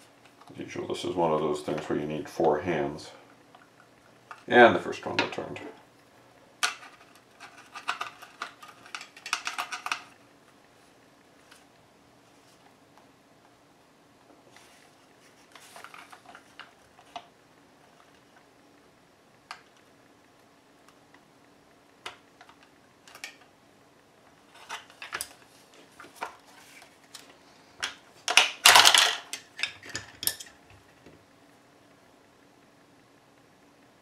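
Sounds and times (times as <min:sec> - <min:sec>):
plastic clatter: 0:06.6 - 0:10.2, 0:15.4 - 0:17.3, 0:24.5 - 0:31.2.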